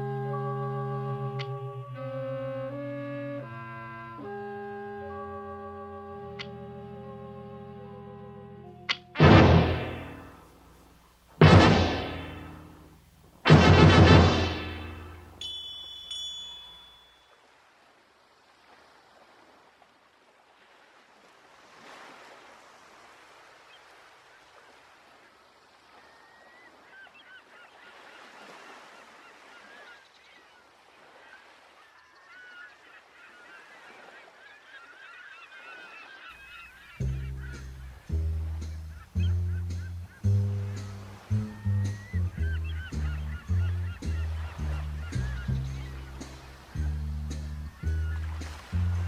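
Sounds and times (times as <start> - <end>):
seagulls crying: 0.0 - 10.3, 26.0 - 49.0
music chord: 0.0 - 10.4, 13.5 - 16.9
faint sea wash: 0.0 - 49.0.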